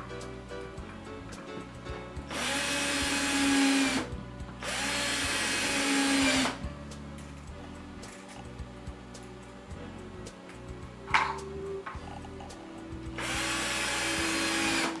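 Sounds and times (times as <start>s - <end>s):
cordless drill driving screws: 2.3s - 6.6s, 13.2s - 15.0s.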